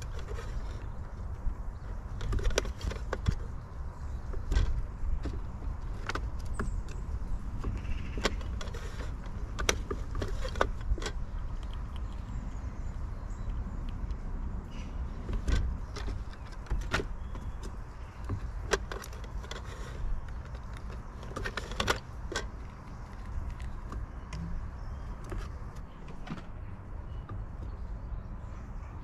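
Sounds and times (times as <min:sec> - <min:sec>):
distant traffic rumble: 0:00.0 - 0:29.0
squirrels clicking and knocking: 0:00.0 - 0:29.0.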